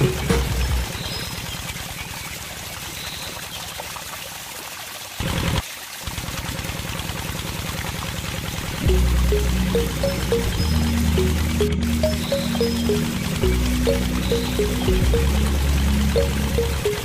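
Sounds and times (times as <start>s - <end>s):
water splashing into pond: 0.0s - 17.0s
low pump pulsing: 6.1s - 17.0s.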